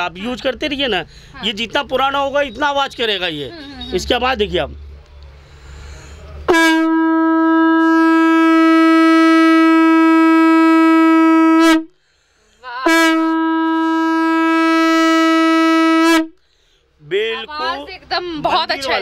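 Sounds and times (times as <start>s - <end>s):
conch shell blasts: 6.5s - 12.0s, 12.8s - 16.4s.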